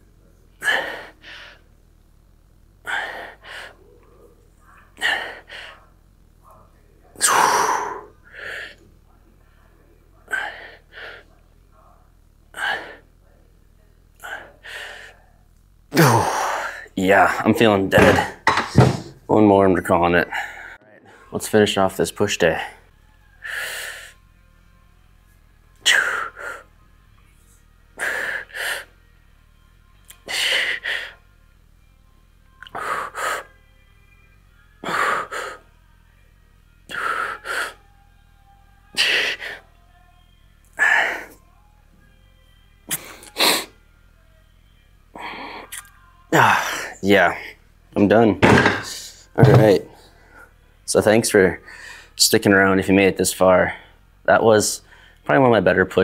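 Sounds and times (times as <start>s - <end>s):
man breathing hard: 2.8s - 3.8s, 20.3s - 21.3s, 36.9s - 37.8s, 51.6s - 52.2s.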